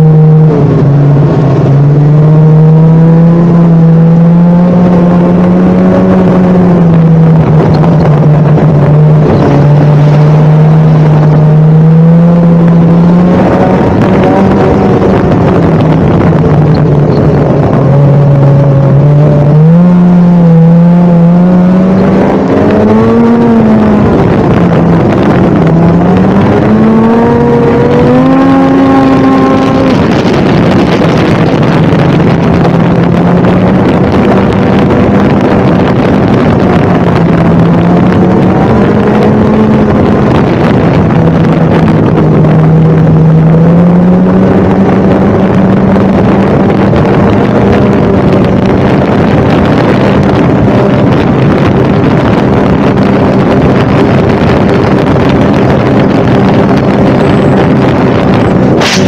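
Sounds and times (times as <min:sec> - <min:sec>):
snowmobile engine revving: 0:00.0 - 0:59.0
steady rushing noise: 0:00.0 - 0:59.0.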